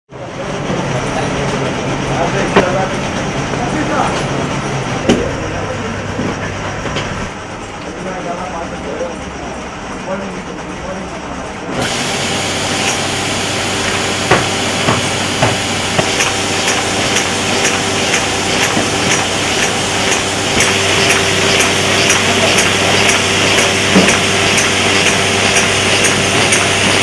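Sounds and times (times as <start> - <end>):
paper-folding machine humming: 0.1 - 27.0
fast even clicking of machine: 11.8 - 27.0
sharp knocks: 14.2 - 26.7.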